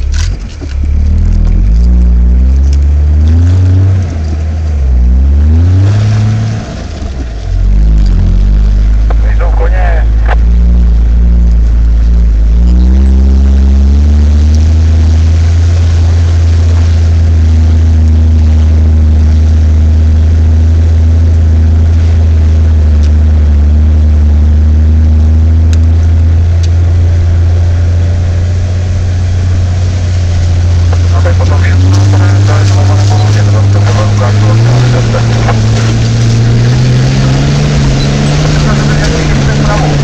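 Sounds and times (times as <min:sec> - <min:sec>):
diesel engine from inside cab: 0:00.0 - 0:40.0.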